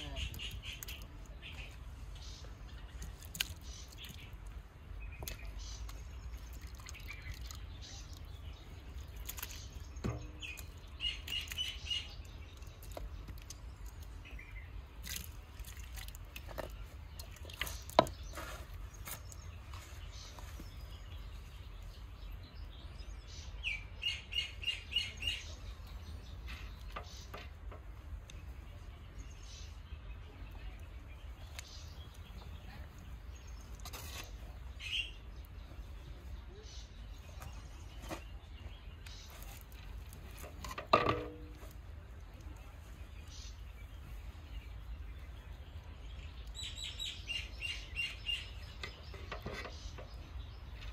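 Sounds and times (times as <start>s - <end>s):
small bird chirping: 0.0s - 40.5s, 42.4s - 50.9s.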